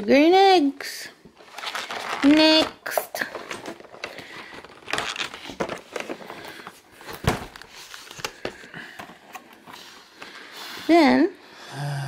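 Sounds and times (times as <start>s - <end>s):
cardboard boxes crinkling: 1.4s - 8.7s
cardboard box thump: 7.1s - 7.6s.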